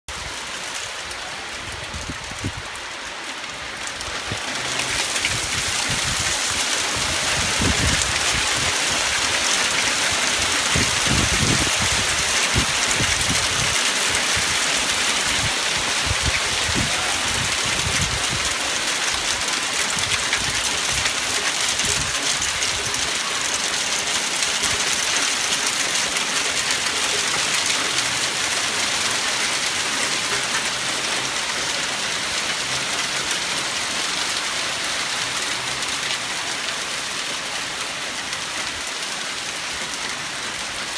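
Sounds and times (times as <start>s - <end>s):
hail and rain on deck: 0.1s - 40.9s.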